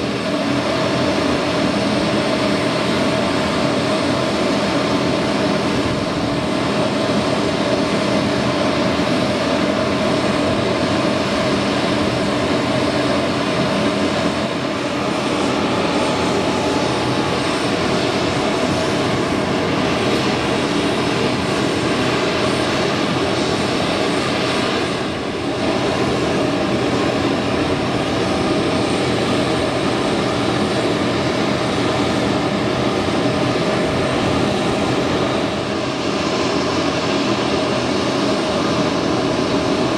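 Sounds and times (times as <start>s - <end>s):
aircraft auxiliary power unit whine: 0.0s - 39.9s.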